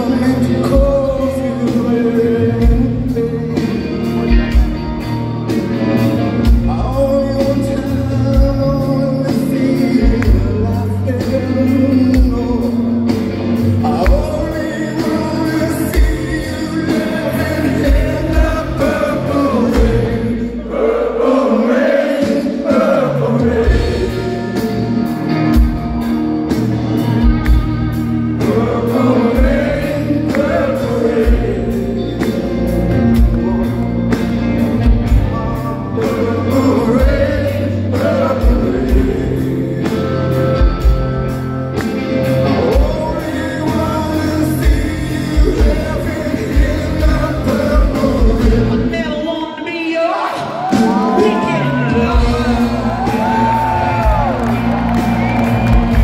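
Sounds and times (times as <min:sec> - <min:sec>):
man singing: 0:00.0 - 0:04.4, 0:06.5 - 0:20.7, 0:28.4 - 0:32.4, 0:35.5 - 0:40.8, 0:42.2 - 0:49.3, 0:49.9 - 0:54.4
rock band playing ballad: 0:00.0 - 0:56.0.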